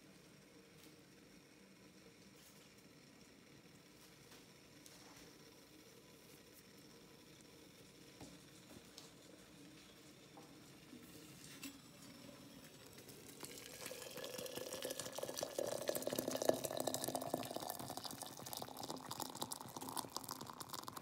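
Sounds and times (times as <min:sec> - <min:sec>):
water pouring into teapot: 0:11.9 - 0:21.0.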